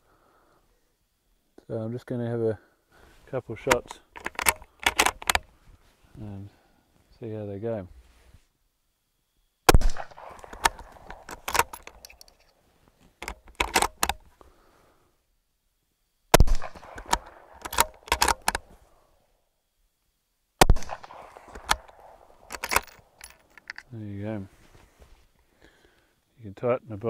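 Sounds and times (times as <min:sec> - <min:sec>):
rifle bolt clicking: 0:03.6 - 0:05.5, 0:10.0 - 0:12.4, 0:13.2 - 0:14.2, 0:16.4 - 0:18.7, 0:20.9 - 0:23.9
rifle shots: 0:03.7 - 0:05.4, 0:09.7 - 0:12.0, 0:16.3 - 0:18.7, 0:20.6 - 0:23.3.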